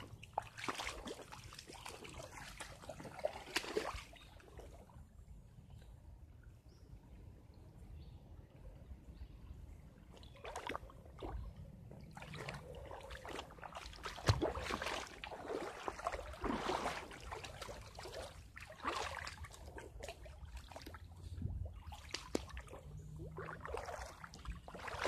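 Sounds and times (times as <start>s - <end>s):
footsteps splashing through water: 0.0s - 4.4s, 10.1s - 25.0s.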